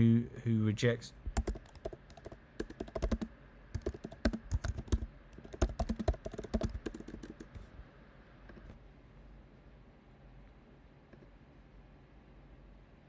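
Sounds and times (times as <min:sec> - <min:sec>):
typing on computer keyboard: 0:01.4 - 0:07.6.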